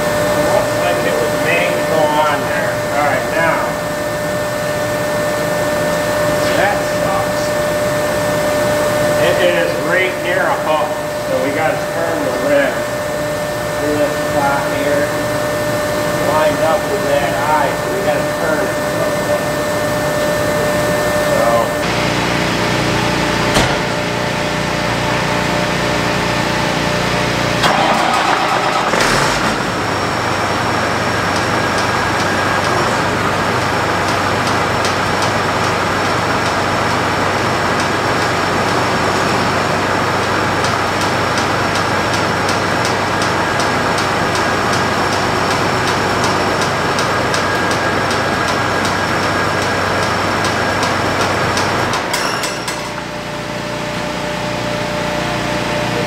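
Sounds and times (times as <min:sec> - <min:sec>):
engine running: 0:11.9 - 0:52.1.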